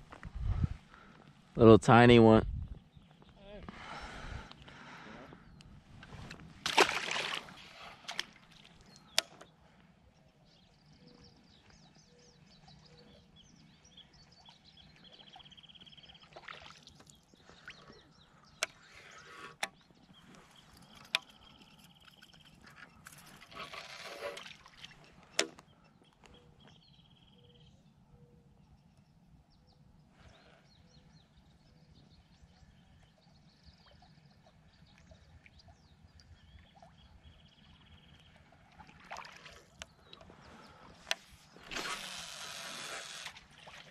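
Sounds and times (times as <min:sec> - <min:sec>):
fishing tackle clicks: 0:20.7 - 0:23.5.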